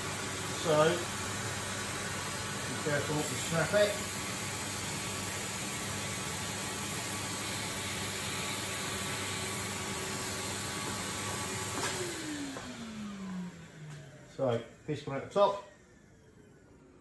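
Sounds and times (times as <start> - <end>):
vacuum cleaner running: 0.0 - 17.0
motor winding down whine: 10.3 - 14.3.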